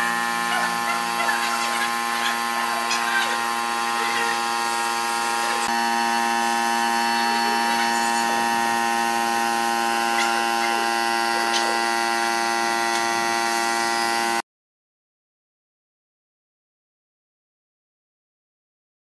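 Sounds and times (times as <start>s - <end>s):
electric motor buzzing whine: 0.0s - 14.4s.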